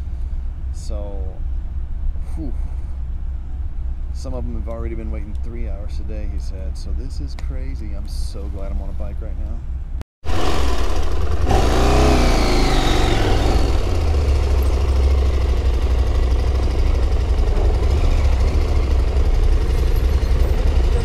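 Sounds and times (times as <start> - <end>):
motorcycle engine revving: 10.2 - 21.0.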